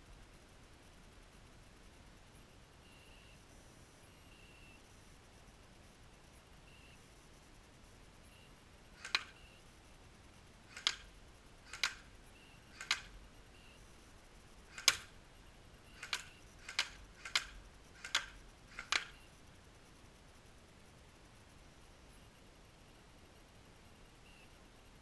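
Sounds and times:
airsoft gun shots: 9.0 - 9.4, 10.7 - 13.2, 14.7 - 15.2, 16.0 - 19.3.

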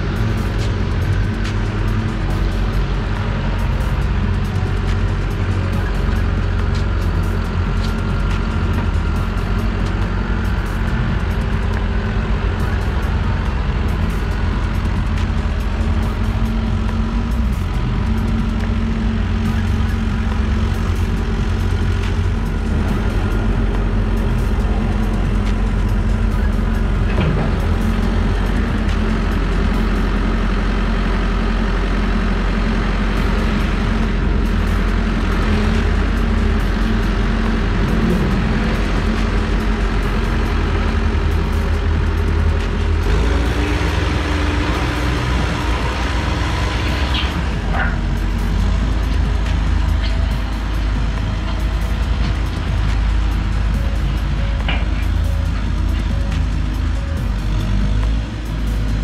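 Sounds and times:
diesel engine running under load: 0.0 - 59.0
light clanks and rattles: 24.2 - 29.8.

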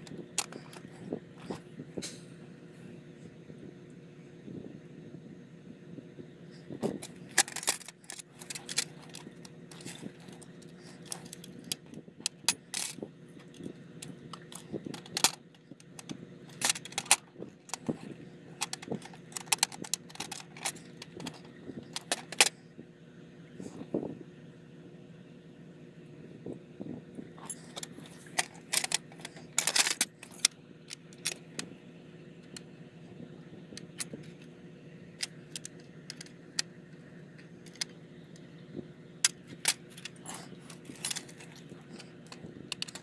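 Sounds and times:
small tools clicking and clinking: 0.0 - 2.2, 6.8 - 22.6, 27.4 - 31.7, 35.2 - 36.7, 37.4 - 38.0, 39.2 - 43.0
steady low hum: 0.0 - 43.0.

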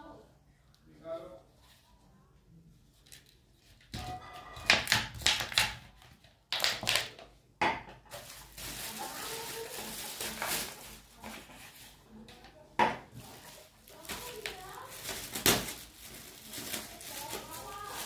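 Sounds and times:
plastic bottles knocking: 6.5 - 8.4
plastic film crinkling: 8.1 - 12.4, 13.1 - 18.0.

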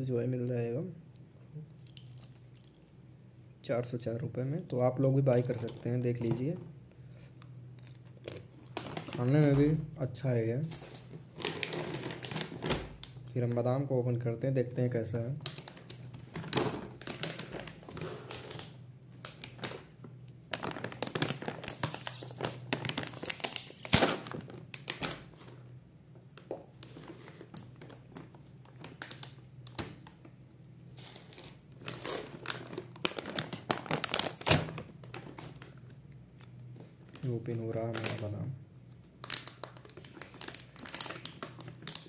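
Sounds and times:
plastic pouch crinkling: 8.2 - 9.4, 10.8 - 13.2, 15.4 - 25.7, 26.4 - 30.2, 31.0 - 42.0.

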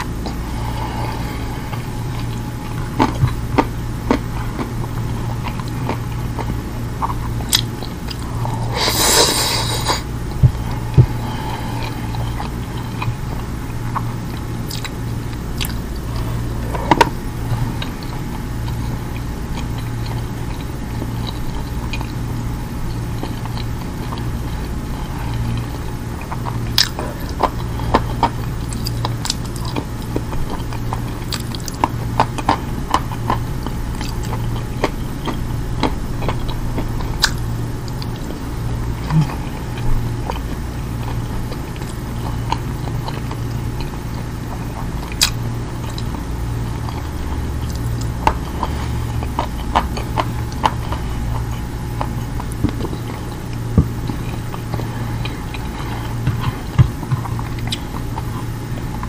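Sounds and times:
person chewing and eating: 0.0 - 59.0
steady low hum: 0.0 - 59.0
mouth clicks and smacks: 14.6 - 15.0.

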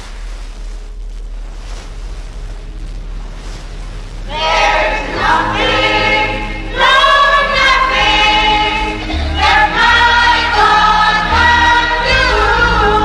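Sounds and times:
low accompanying notes: 1.3 - 13.0
gospel choir singing: 4.3 - 13.0.

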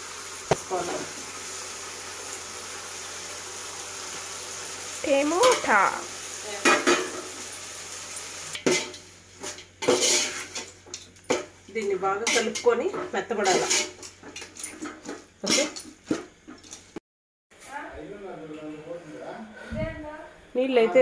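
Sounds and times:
food sizzling in a pot: 0.0 - 17.0
ladle clanking and scraping pot: 8.6 - 11.5, 12.2 - 16.9.

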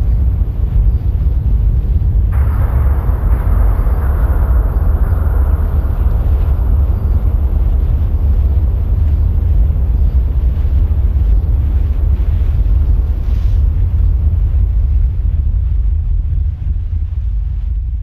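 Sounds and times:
deep rumble: 0.0 - 18.0
faint hiss: 2.3 - 13.8.

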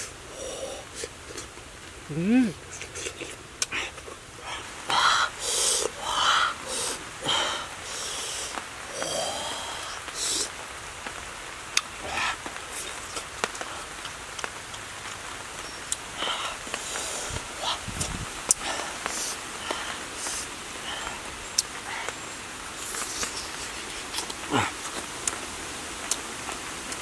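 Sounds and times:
wet smacking and chewing: 2.7 - 4.2, 23.0 - 25.4
sharp breaths and sniffs: 2.7 - 10.6, 16.2 - 21.2.

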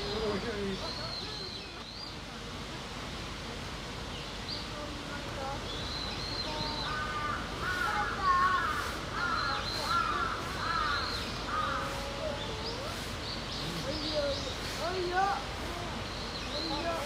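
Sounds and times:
crow cawing: 6.9 - 12.0.

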